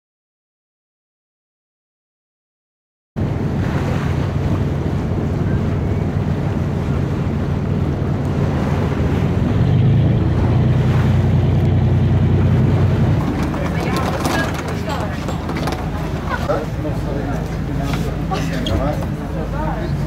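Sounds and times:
wind buffeting microphone: 0:03.2 - 0:17.8
boat engine droning: 0:03.2 - 0:20.0
water washing: 0:06.4 - 0:19.6.

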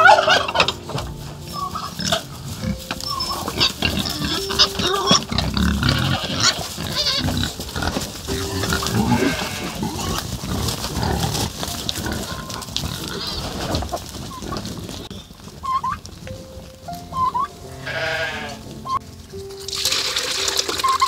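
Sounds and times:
pigs grunting and squealing: 0:00.0 - 0:15.8.

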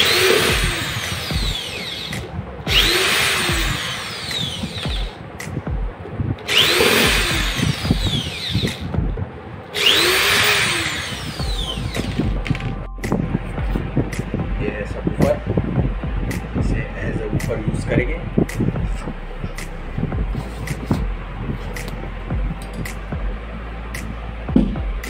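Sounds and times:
cordless drill whining: 0:00.0 - 0:05.1, 0:06.5 - 0:08.8, 0:09.8 - 0:12.3.

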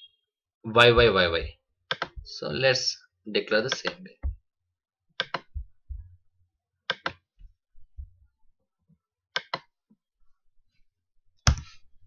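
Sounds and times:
soft low thumps: 0:00.8 - 0:01.6, 0:04.2 - 0:04.5, 0:05.5 - 0:06.2, 0:07.4 - 0:08.3
computer mouse clicking: 0:01.9 - 0:02.3, 0:03.7 - 0:04.0, 0:05.2 - 0:05.6, 0:06.9 - 0:07.2, 0:09.4 - 0:09.7.

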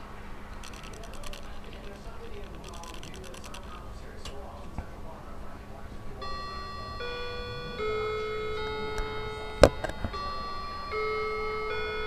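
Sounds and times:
simple electronic tune: 0:06.2 - 0:12.0.

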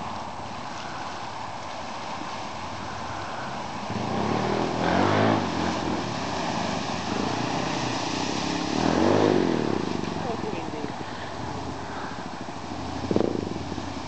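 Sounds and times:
truck churning through mud: 0:00.0 - 0:14.0
truck engine revving: 0:03.9 - 0:10.5.

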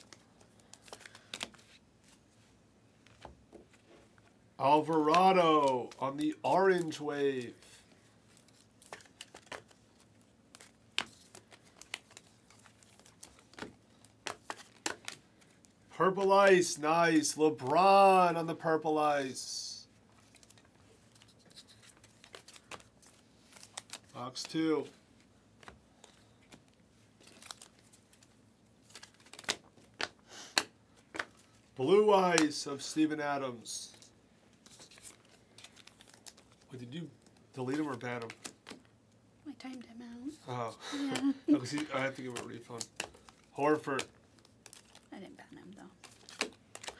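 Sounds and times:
trading cards flipped by hand: 0:00.0 - 0:02.2, 0:05.0 - 0:15.7, 0:20.2 - 0:24.7, 0:25.6 - 0:31.6, 0:32.2 - 0:32.6, 0:33.9 - 0:38.9, 0:41.1 - 0:45.1, 0:46.0 - 0:46.9
cards sliding against cards: 0:41.1 - 0:44.1.

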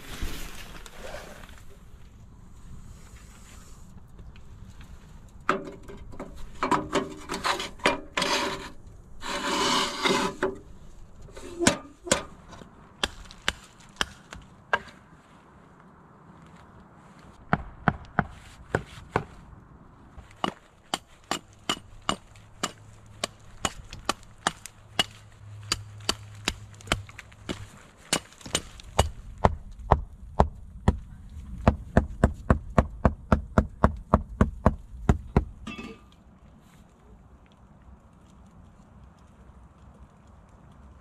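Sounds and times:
hatchet chopping wood: 0:20.4 - 0:31.0, 0:31.7 - 0:35.5.

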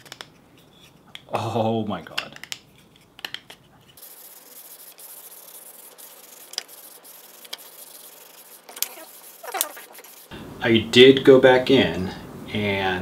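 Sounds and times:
pad rubbing wooden strip: 0:03.6 - 0:10.3.

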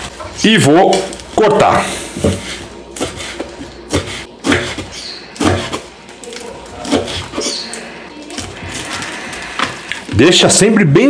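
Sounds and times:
knife cutting lettuce on board: 0:02.2 - 0:05.8, 0:06.8 - 0:07.6.

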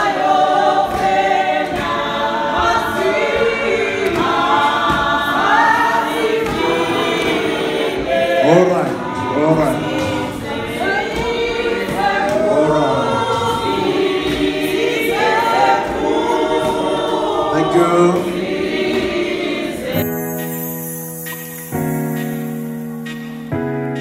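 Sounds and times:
group singing a hymn: 0:00.0 - 0:23.1
piano music: 0:19.7 - 0:24.0.

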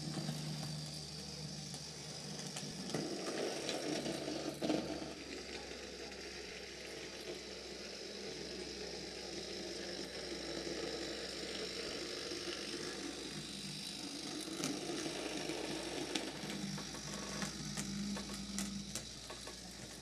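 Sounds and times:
model tram whirring rattle: 0:00.0 - 0:20.0.

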